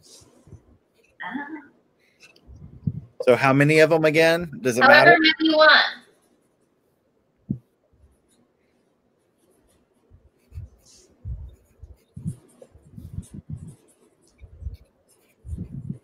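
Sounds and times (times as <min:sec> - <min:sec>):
pen scratching on paper: 0:09.2 - 0:16.0.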